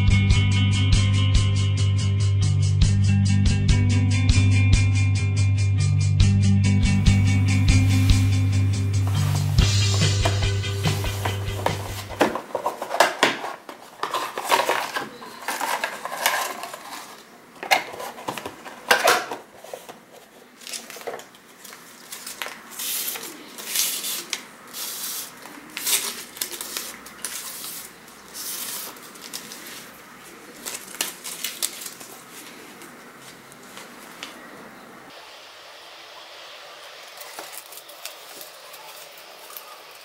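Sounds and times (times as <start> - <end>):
paper crackling and rustling: 7.6 - 34.4, 37.0 - 40.0
scissors snipping paper: 20.6 - 29.9.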